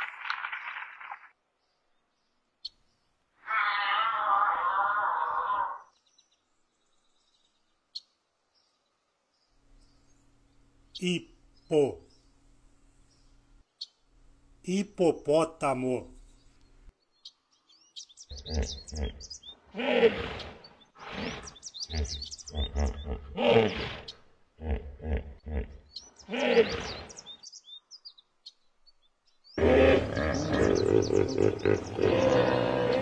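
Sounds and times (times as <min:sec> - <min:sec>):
birds chirping: 0:00.0 - 0:33.0
hippopotamus grunting and honking: 0:18.3 - 0:27.1, 0:29.6 - 0:33.0.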